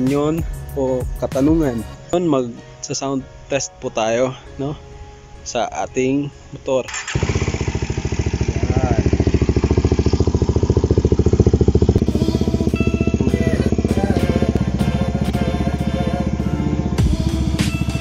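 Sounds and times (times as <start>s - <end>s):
motorcycle engine idling: 6.9s - 18.0s.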